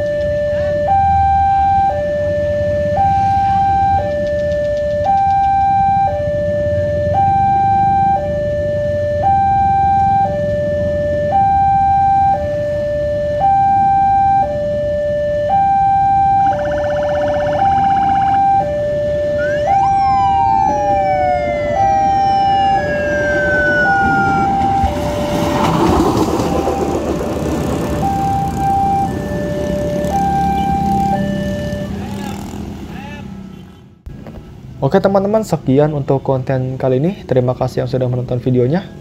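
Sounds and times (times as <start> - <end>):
level crossing warning alarm: 0.0 - 32.8
rail car rumbling: 19.3 - 31.4
whistling tone sliding down: 19.4 - 26.1.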